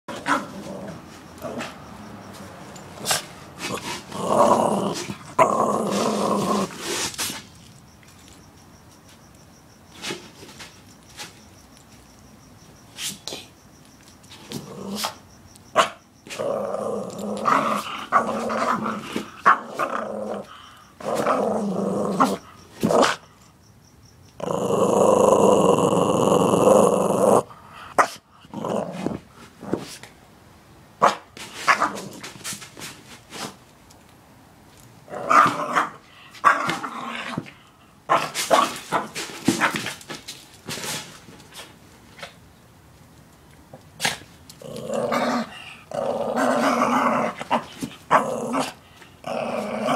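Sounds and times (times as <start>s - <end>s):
small dog growling and snarling: 0.1s - 1.8s, 3.0s - 7.1s, 14.5s - 15.2s, 16.3s - 23.2s, 24.4s - 29.9s, 35.1s - 39.1s, 44.0s - 49.9s.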